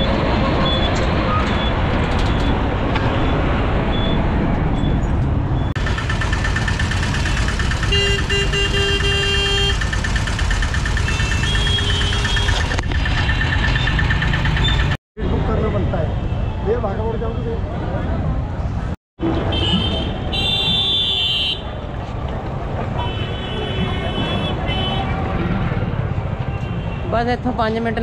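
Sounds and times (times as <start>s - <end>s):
auto-rickshaw engine: 0.0s - 15.8s, 19.2s - 28.0s
street traffic road noise: 0.0s - 28.0s
vehicle horns honking: 7.8s - 9.9s, 11.0s - 12.8s, 19.2s - 21.7s, 22.9s - 25.2s.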